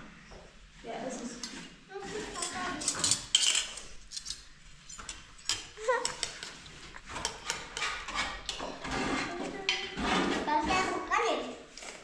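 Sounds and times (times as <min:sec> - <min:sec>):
spoons clinking on bowls: 0:02.4 - 0:06.6.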